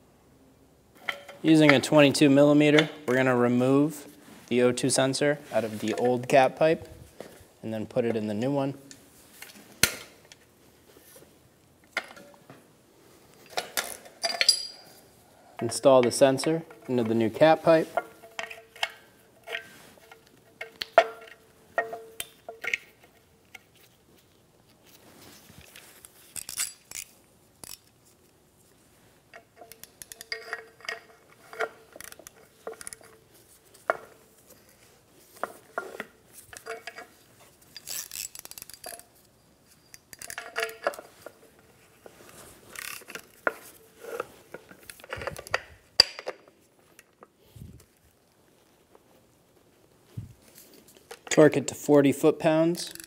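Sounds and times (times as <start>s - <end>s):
metal tools clinking: 13.4s - 15.0s, 29.4s - 34.8s
metal pipe ringing: 21.0s - 22.7s.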